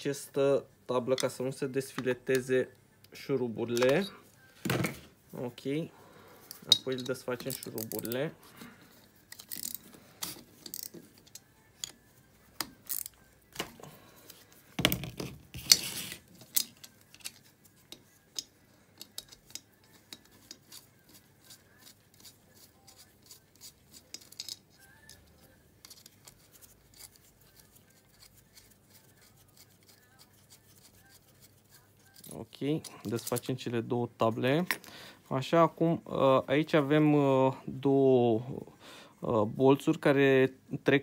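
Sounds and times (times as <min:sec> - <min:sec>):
tools clinking on metal: 0:06.5 - 0:08.2, 0:24.1 - 0:25.2.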